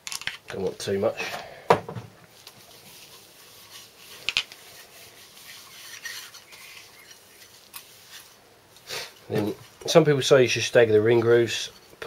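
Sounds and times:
gloved hands rubbing: 2.2s - 10.2s.

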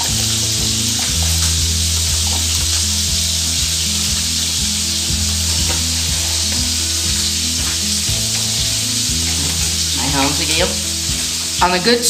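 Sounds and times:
low background music: 0.0s - 12.0s
meat searing in butter: 0.0s - 12.0s
sugar bubbling in saucepan: 0.0s - 12.0s.

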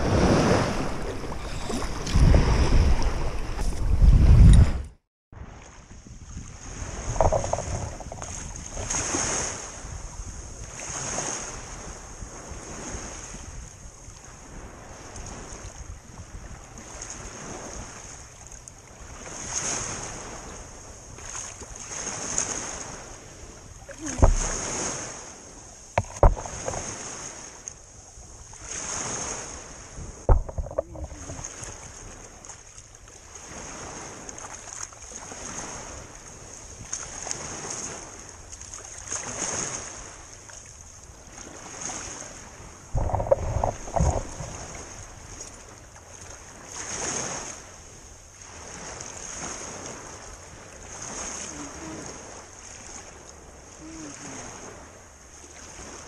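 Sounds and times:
small waves lapping on shore: 0.0s - 4.8s, 5.4s - 56.0s
sharp knocks: 26.0s - 26.8s, 30.3s - 31.4s.

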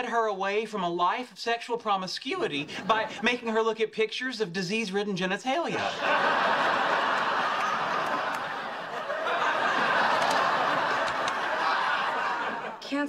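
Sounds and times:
studio audience laughing: 5.7s - 13.0s.

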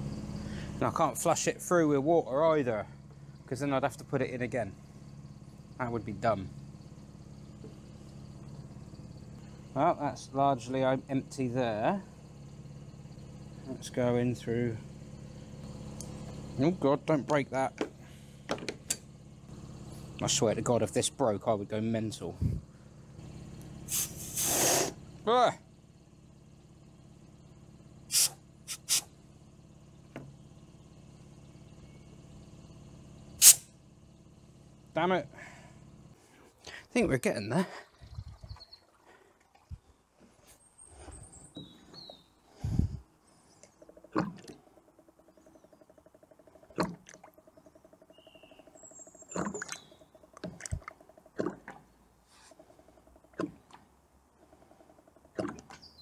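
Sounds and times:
low hum: 0.0s - 56.0s
compressed air hissing: 23.9s - 25.0s, 28.1s - 29.1s, 33.4s - 33.7s
liquid glugging into plastic jug: 37.7s - 40.0s, 44.1s - 44.7s, 46.7s - 47.4s, 49.3s - 51.9s, 55.3s - 55.8s.

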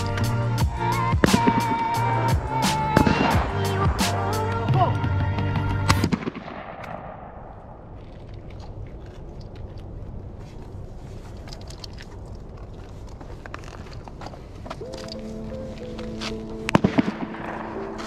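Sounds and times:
shotgun blast with echo: 1.2s - 2.1s, 3.0s - 4.0s, 16.7s - 18.0s.

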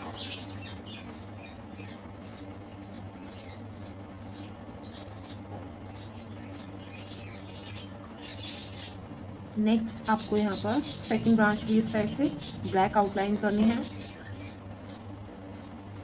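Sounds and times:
steady low hum: 0.0s - 16.0s
marker squeaking on paper: 0.9s - 9.0s.

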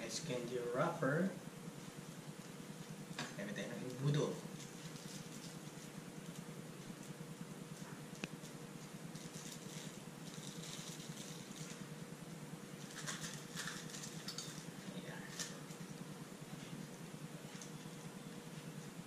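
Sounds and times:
steady low hum: 0.0s - 19.0s
plastic wrappers crinkling: 4.5s - 7.2s, 8.3s - 11.8s, 12.8s - 14.7s.

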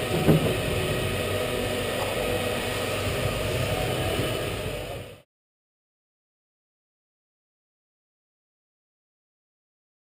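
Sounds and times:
go-kart track hum and hiss: 0.0s - 5.2s.

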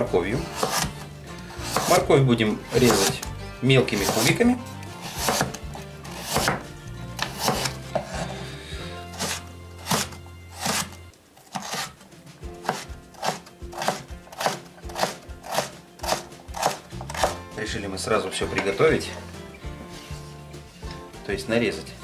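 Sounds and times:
knife chopping on wooden board: 0.4s - 2.1s, 2.7s - 3.3s, 3.9s - 4.4s, 5.0s - 8.4s, 9.1s - 12.0s, 12.6s - 17.4s.

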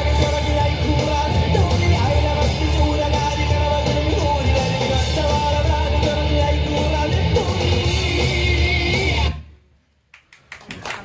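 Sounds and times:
dance song with guitar and singing: 0.0s - 9.4s
sharp claps: 10.1s - 11.0s.

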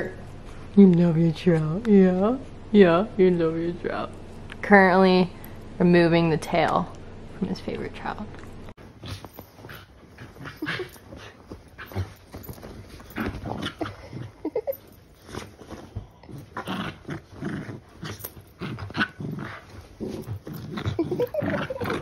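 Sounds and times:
bedding rustling: 8.8s - 22.0s.

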